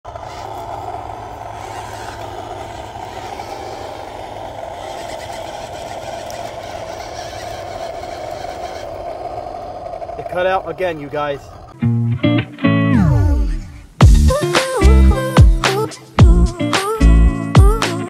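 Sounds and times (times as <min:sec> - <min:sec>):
toy truck motor whining: 0:00.1 - 0:11.8.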